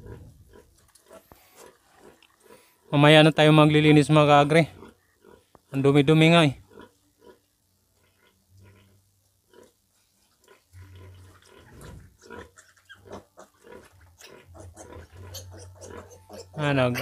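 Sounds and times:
piglets grunting and squeaking: 0.0 - 2.7, 10.5 - 17.0.

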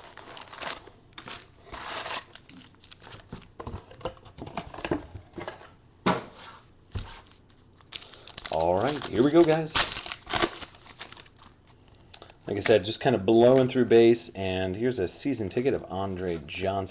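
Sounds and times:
card wrappers crinkling and tearing: 0.0 - 4.0, 7.4 - 12.6.

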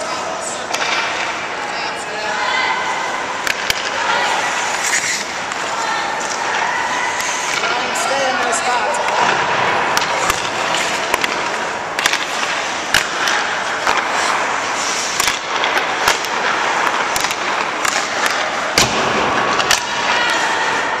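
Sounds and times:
ice skates scraping: 0.0 - 21.0
sharp knocks echoing in arena: 15.2 - 20.2.

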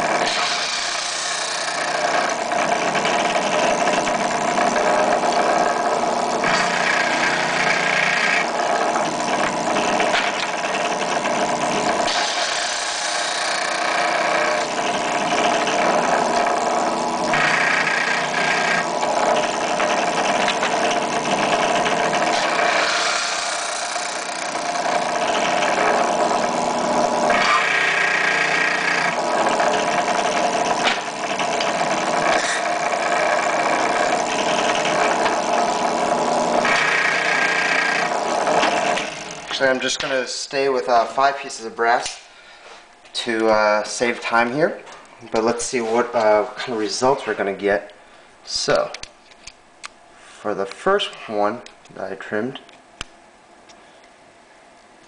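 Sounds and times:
cutter shaving brass case: 0.0 - 39.8
drill press motor running: 0.0 - 40.1.

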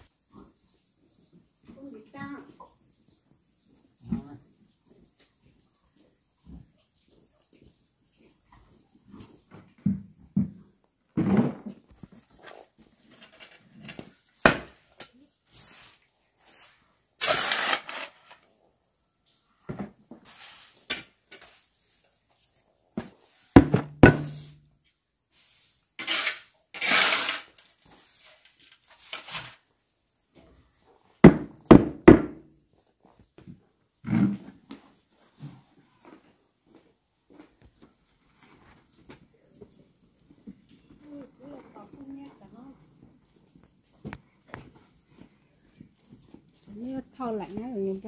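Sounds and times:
scraping or rustling: 15.5 - 18.4, 25.4 - 29.7
knocks and thuds: 23.6 - 24.5, 31.2 - 32.4.

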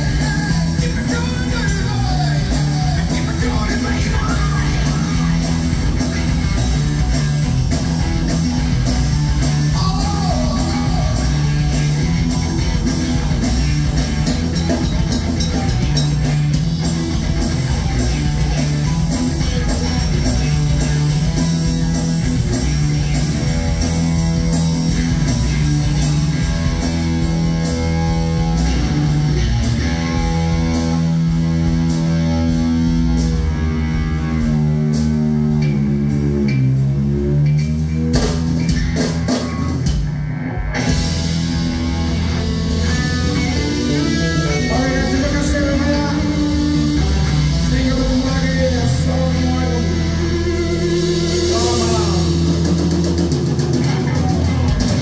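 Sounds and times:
bass guitar: 0.0 - 55.0
drum kit: 0.0 - 55.0
electric guitars: 0.0 - 55.0
person singing: 9.7 - 11.6, 43.9 - 52.7.

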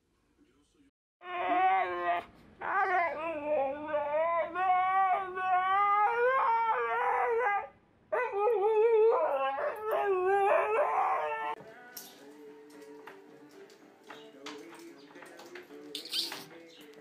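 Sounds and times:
husky howling: 1.2 - 11.6.

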